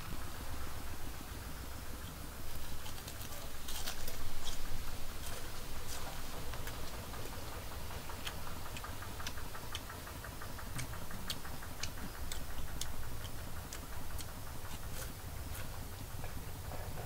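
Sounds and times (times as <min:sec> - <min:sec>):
crunchy chewing: 0:02.0 - 0:17.0
light even ticks: 0:06.0 - 0:16.4.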